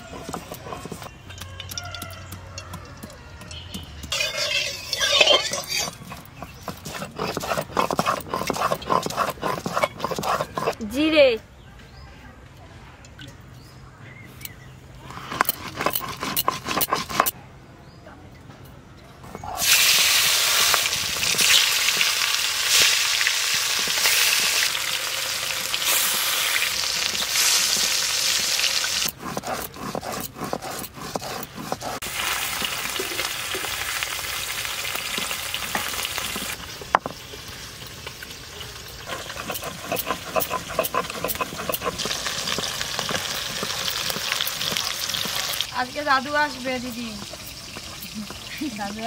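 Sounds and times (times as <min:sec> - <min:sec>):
metal spatula clinking pan: 0:01.3 - 0:06.0
fish sizzling in hot oil: 0:19.6 - 0:29.1, 0:32.0 - 0:40.0, 0:42.0 - 0:49.0.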